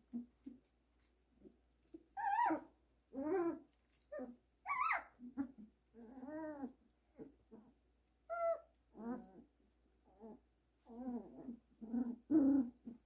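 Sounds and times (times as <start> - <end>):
puppies whining and squealing: 2.1 - 9.5, 10.1 - 13.0.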